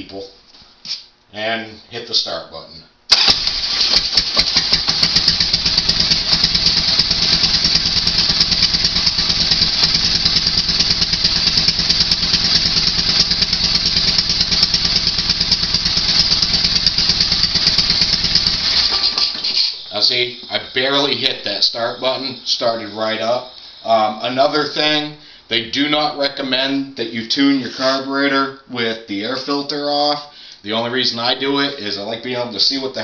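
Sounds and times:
motorcycle engine starting and idling: 0:03.1 - 0:19.6.

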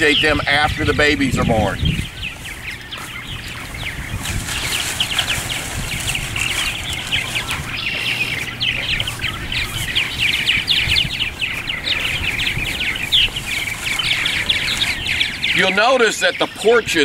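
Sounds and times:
birds chattering: 0:00.0 - 0:17.0.

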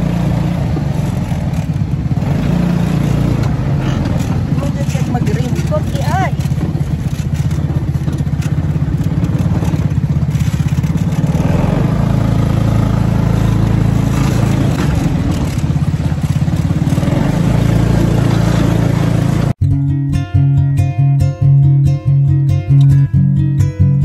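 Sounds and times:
vehicle engine running: 0:00.0 - 0:19.8.

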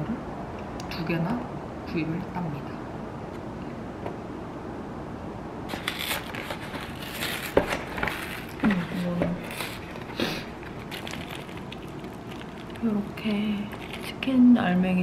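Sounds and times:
plastic packaging crinkling: 0:05.7 - 0:14.3.

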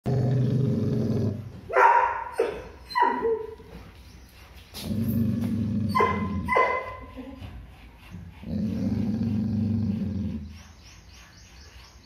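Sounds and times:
dog growling: 0:00.0 - 0:01.6, 0:04.8 - 0:10.6
dog barking: 0:01.7 - 0:03.5, 0:06.0 - 0:07.1.

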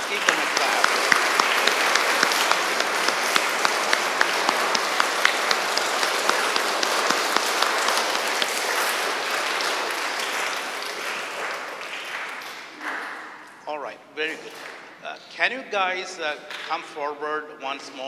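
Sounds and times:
children applauding: 0:00.0 - 0:13.5
sharp nearby claps: 0:00.0 - 0:13.6, 0:14.3 - 0:15.1, 0:16.3 - 0:17.0.

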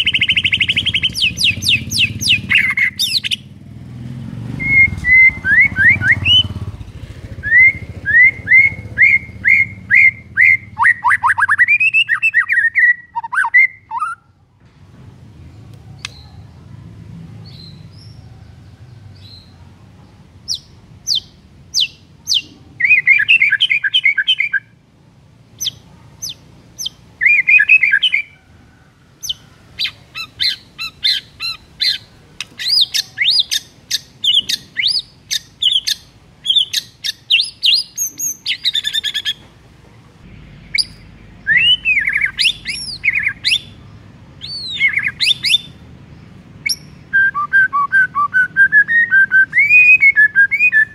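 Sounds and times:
bird singing whistled trills: 0:00.0 - 0:03.5, 0:04.6 - 0:06.6, 0:07.4 - 0:14.3, 0:20.5 - 0:24.8, 0:25.6 - 0:28.4, 0:29.2 - 0:39.4, 0:40.7 - 0:43.8, 0:44.4 - 0:45.8, 0:46.6 - 0:50.9.

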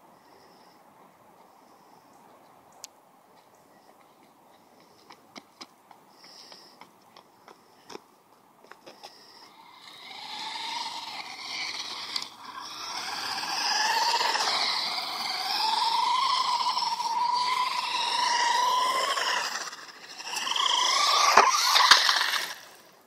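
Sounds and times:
radio-controlled truck motor whine: 0:09.0 - 0:23.0.

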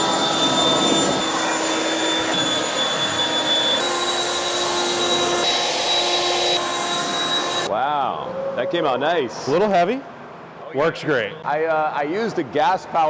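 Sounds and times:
leaf blower running: 0:00.0 - 0:07.7.

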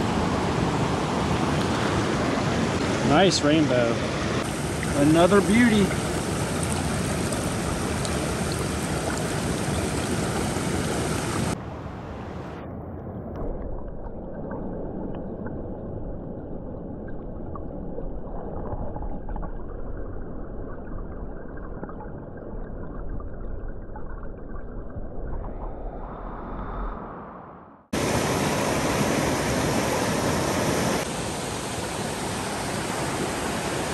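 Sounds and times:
creek water rushing: 0:00.0 - 0:11.6, 0:28.0 - 0:33.9
muffled underwater rumble: 0:13.2 - 0:27.0.

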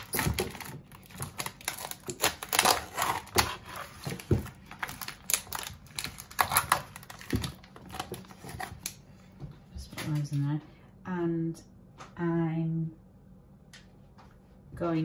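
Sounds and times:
plastic wrapping crinkling: 0:00.0 - 0:09.0.

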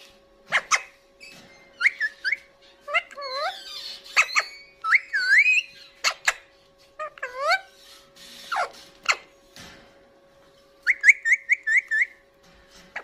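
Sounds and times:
parakeet whistling: 0:00.5 - 0:06.4, 0:10.8 - 0:12.2
parakeet chirps: 0:00.5 - 0:09.3, 0:10.8 - 0:12.2.

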